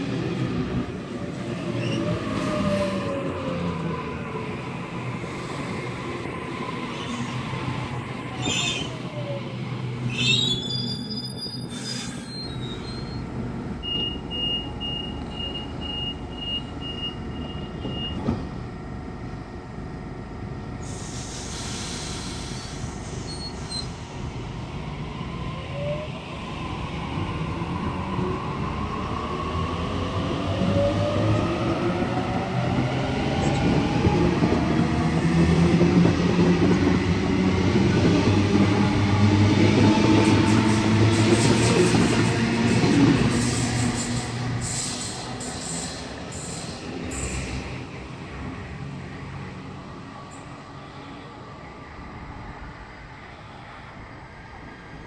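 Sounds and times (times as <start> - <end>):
hiss: 20.8 - 24.0, 43.4 - 47.5.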